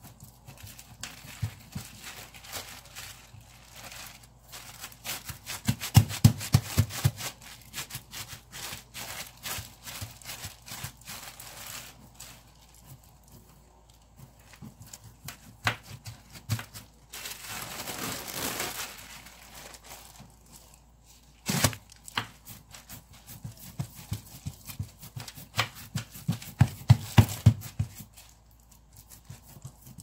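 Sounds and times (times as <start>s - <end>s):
plastic sheet crinkling: 0.0s - 26.4s
hands patting dough: 0.0s - 30.0s.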